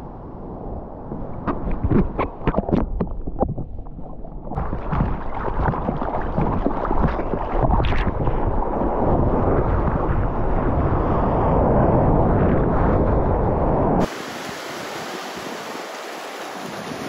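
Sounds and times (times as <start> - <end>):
rush of water and wind: 0.0 - 17.0
water splashes: 1.1 - 9.9, 14.0 - 17.0
underwater gurgling and bubbling: 1.2 - 10.6.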